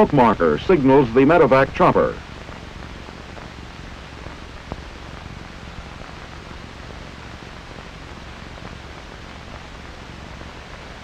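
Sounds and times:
film soundtrack hiss: 0.0 - 11.0.

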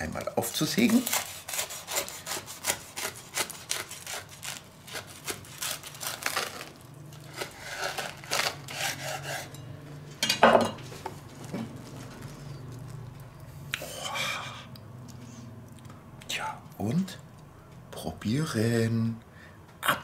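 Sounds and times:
knife sawing through crunchy toast: 0.6 - 9.6.

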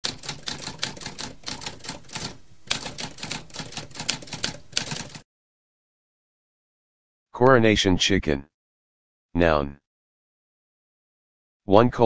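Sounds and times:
typewriter keys clacking: 0.0 - 5.2.

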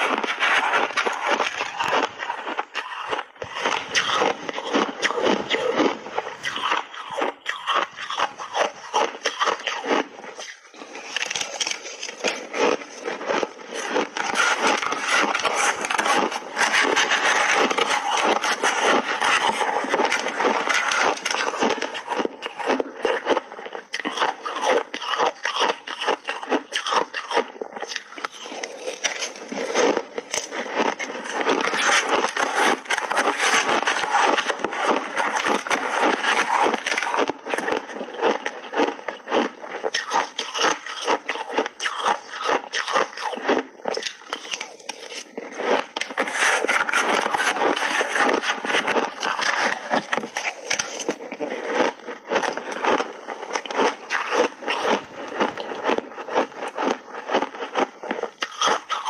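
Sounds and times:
metal spoon scraping ice: 0.0 - 23.3, 40.1 - 55.7
ice being chewed: 0.0 - 59.0.

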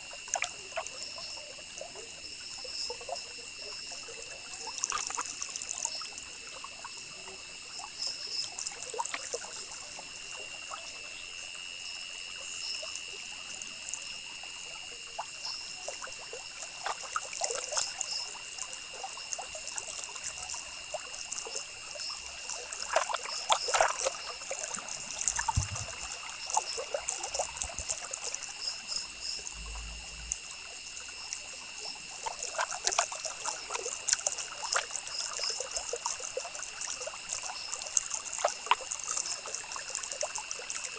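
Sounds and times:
high-pitched background whine: 24.0 - 32.0.

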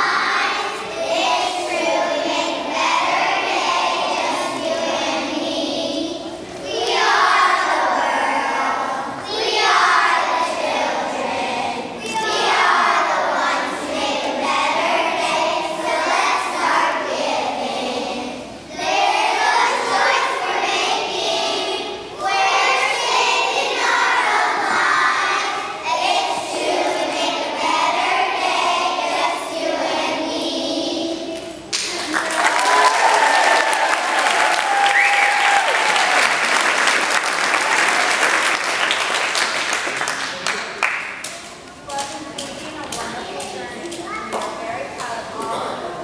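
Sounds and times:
children singing in unison: 0.0 - 31.6.

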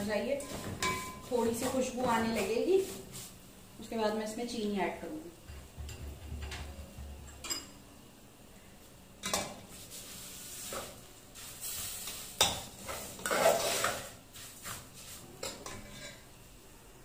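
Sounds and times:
spoon stirring and scraping pot: 9.2 - 16.3.

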